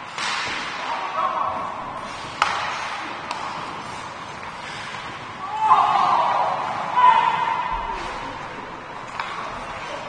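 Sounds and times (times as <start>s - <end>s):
hockey stick hitting puck: 0.1s - 0.9s, 2.1s - 5.1s, 9.1s - 9.6s
hubbub of distant voices: 5.4s - 10.0s.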